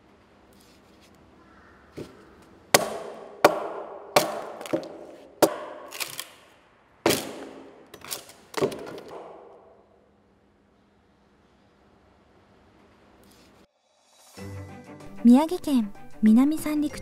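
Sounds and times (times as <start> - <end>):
hand tool striking wood: 2.0 - 6.3, 7.1 - 9.6.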